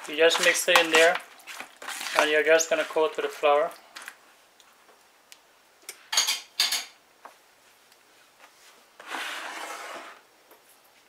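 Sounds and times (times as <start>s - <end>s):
kitchenware clattering: 6.1s - 7.0s
plastic bowl scraping counter: 9.0s - 10.2s.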